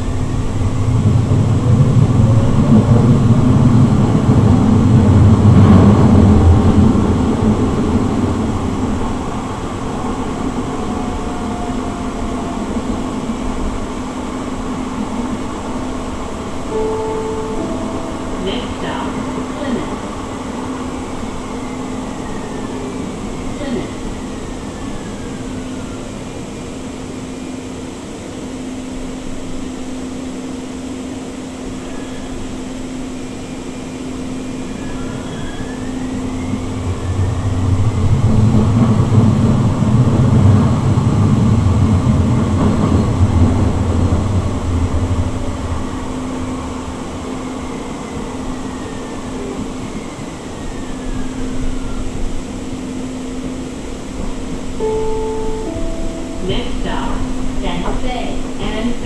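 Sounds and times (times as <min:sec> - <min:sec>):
low rumble: 0:00.0 - 0:11.4
light rail vehicle running: 0:00.0 - 0:59.0.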